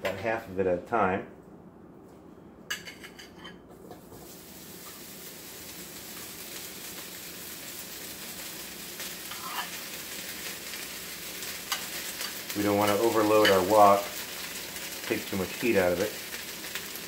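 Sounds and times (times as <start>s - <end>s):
beef sizzling in a wok: 4.1s - 17.0s.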